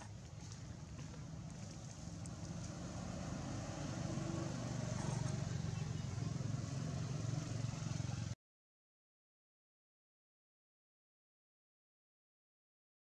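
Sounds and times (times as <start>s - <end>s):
vehicle engine running: 0.0s - 8.4s.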